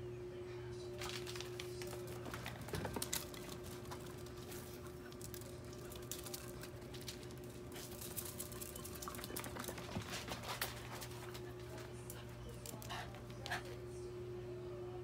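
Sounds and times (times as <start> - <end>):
low steady hum: 0.0 - 15.0
dog claws clicking on floor: 1.0 - 13.7.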